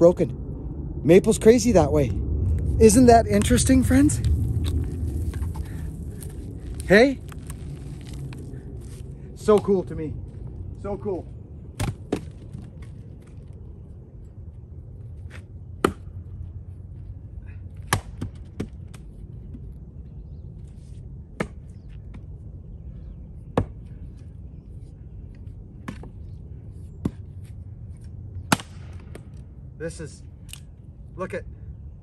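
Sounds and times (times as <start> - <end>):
axe striking wood: 17.9 - 18.7, 28.5 - 29.2.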